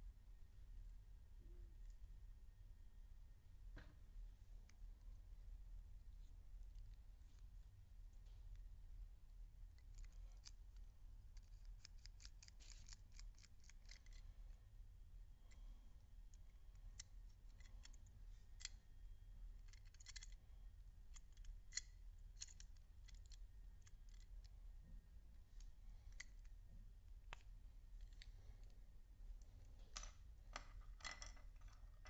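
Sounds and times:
faint low hum: 0:00.0 - 0:32.0
plastic toy parts clicking: 0:11.4 - 0:14.2, 0:19.6 - 0:20.4, 0:21.1 - 0:24.3.

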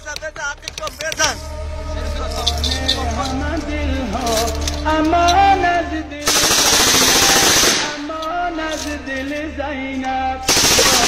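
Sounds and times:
man singing a lament: 0:00.0 - 0:11.0
machine gun bursts: 0:06.2 - 0:08.0, 0:10.5 - 0:11.0.

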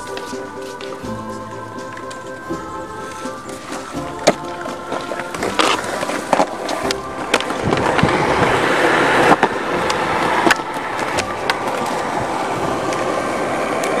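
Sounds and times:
skateboard wheels rolling on concrete: 0:00.0 - 0:14.0
skateboard clacks: 0:03.1 - 0:14.0.

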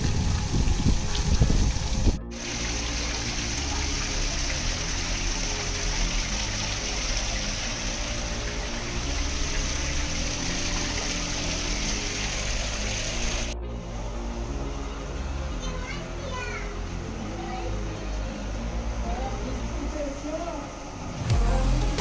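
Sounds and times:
running water: 0:00.0 - 0:13.6.

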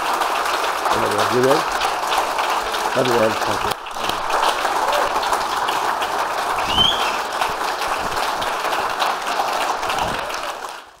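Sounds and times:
crowd applauding: 0:00.0 - 0:11.0
high whistle: 0:06.7 - 0:07.2.

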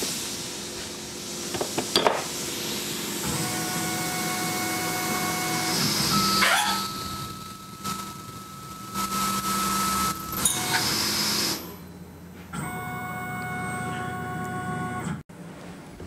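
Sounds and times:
spindle whine: 0:02.4 - 0:15.2
mill drilling into aluminum: 0:03.0 - 0:11.8.

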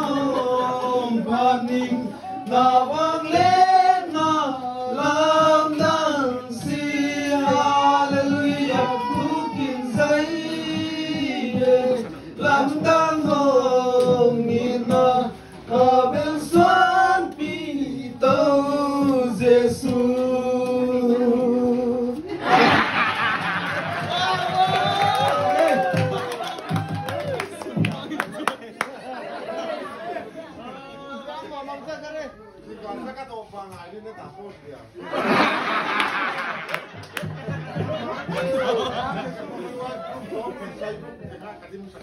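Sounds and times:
men and women singing a chant: 0:00.0 - 0:22.2.

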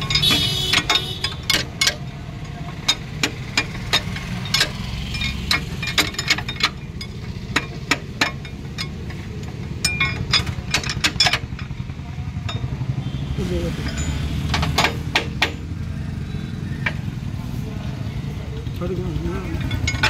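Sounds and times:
steel tools clinking on gears: 0:00.0 - 0:11.8, 0:13.6 - 0:15.7, 0:19.3 - 0:20.0.

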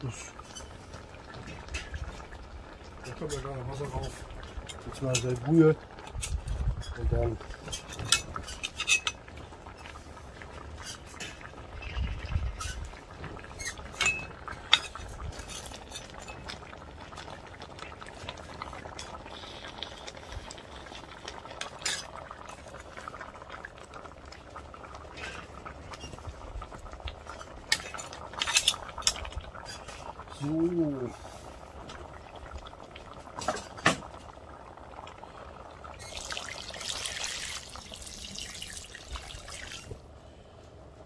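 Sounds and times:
sauce bubbling: 0:00.0 - 0:41.0
metal utensils clinking on pot: 0:07.6 - 0:09.2, 0:13.6 - 0:16.6, 0:21.6 - 0:22.6, 0:27.4 - 0:30.0.

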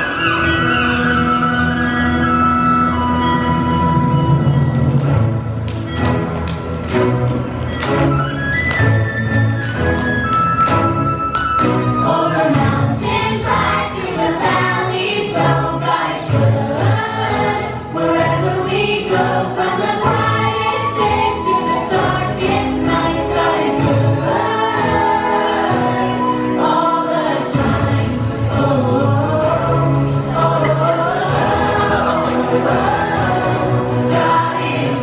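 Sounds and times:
instrumental accompaniment with bass: 0:00.0 - 0:35.0
children's choir singing: 0:11.7 - 0:35.0.

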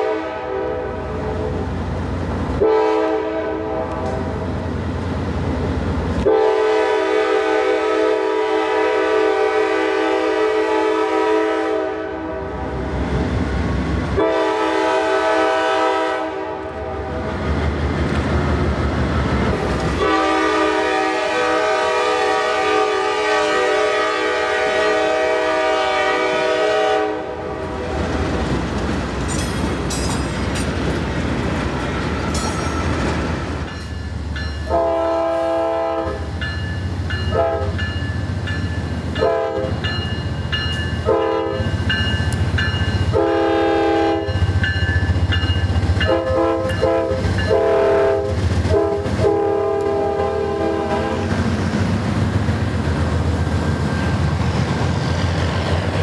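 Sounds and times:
locomotive air horn blasts: 0:00.0 - 0:01.6, 0:02.6 - 0:04.4, 0:06.2 - 0:12.8, 0:14.2 - 0:17.3, 0:19.9 - 0:28.0, 0:34.7 - 0:36.4, 0:37.3 - 0:37.8, 0:39.2 - 0:39.8, 0:41.0 - 0:41.8, 0:43.1 - 0:44.4, 0:46.0 - 0:51.4
train rumbling on rails: 0:00.0 - 0:56.0.

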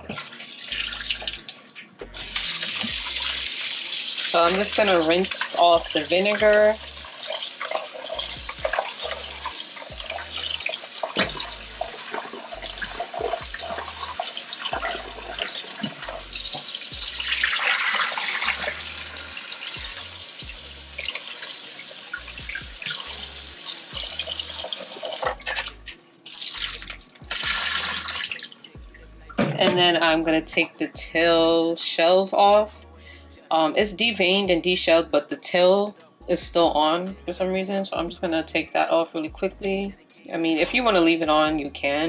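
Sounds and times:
faucet running into a bowl: 0:00.1 - 0:28.8
water splashing and sloshing: 0:06.6 - 0:16.6.

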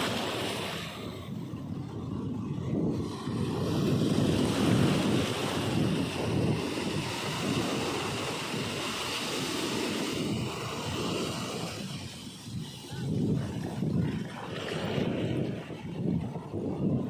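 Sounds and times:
waves washing on sand: 0:00.0 - 0:17.0
wind buffeting microphone: 0:00.0 - 0:17.0.

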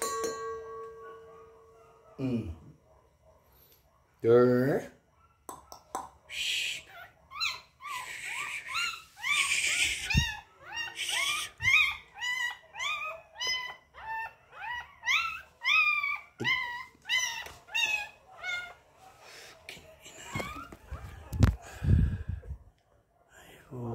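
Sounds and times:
puppy whining: 0:06.8 - 0:19.3, 0:19.9 - 0:22.6.

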